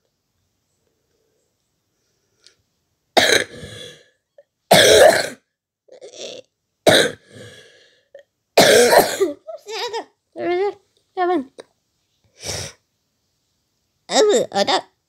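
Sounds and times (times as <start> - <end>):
person coughing hard: 3.2 - 3.8, 4.7 - 5.4, 6.9 - 7.2, 8.6 - 9.4.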